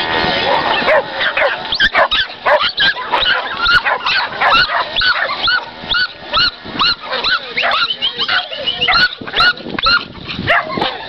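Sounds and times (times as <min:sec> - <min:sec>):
dog yelping: 0:00.4 - 0:11.0.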